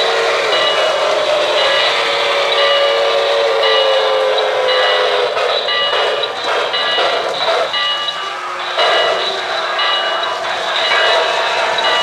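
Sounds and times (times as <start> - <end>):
model train whistle: 0.0 - 6.3
model train rolling on track: 0.0 - 12.0.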